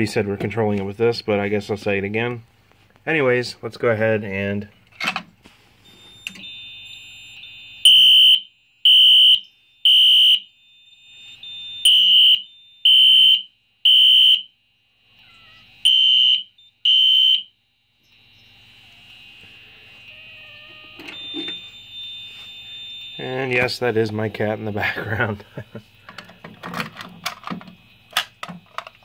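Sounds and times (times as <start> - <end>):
fire alarm horn blasts: 5.9 - 14.9, 15.8 - 26.4
steady high tone: 15.1 - 28.6.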